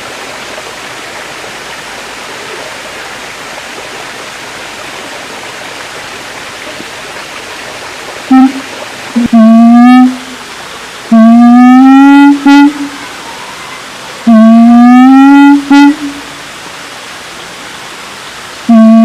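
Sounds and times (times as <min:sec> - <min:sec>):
siamang call: 0:08.3 - 0:10.5, 0:11.1 - 0:16.4, 0:18.7 - 0:19.0.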